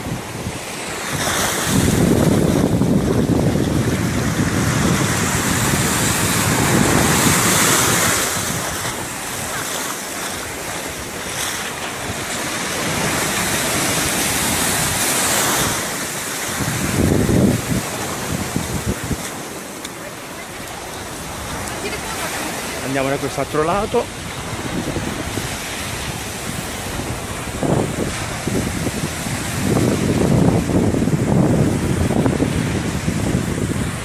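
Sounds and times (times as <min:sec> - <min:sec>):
surf washing onto sand: 0:00.0 - 0:34.0
wind buffeting microphone: 0:00.0 - 0:34.0.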